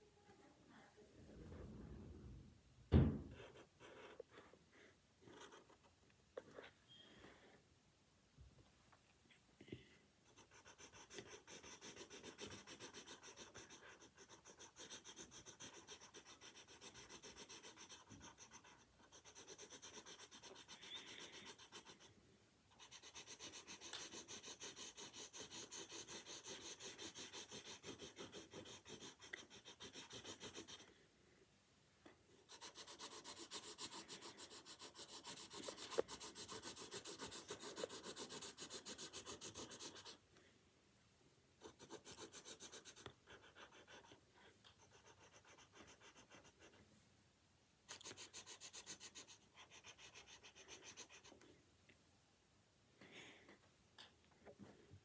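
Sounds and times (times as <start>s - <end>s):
pen scratching on paper: 3.3s - 6.6s, 10.3s - 22.1s, 22.7s - 30.9s, 32.4s - 40.2s, 41.6s - 46.8s, 47.9s - 51.4s.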